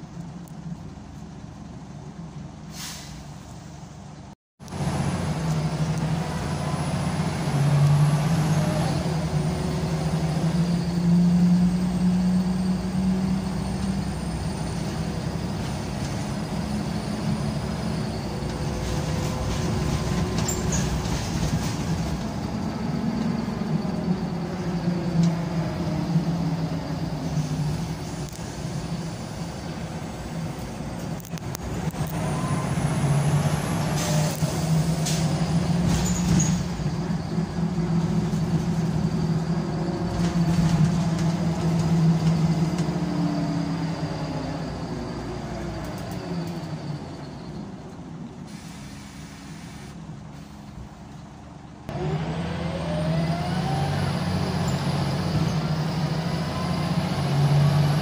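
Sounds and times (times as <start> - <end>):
bus diesel engine changing gears: 0.0 - 58.0
air hiss: 48.5 - 50.8.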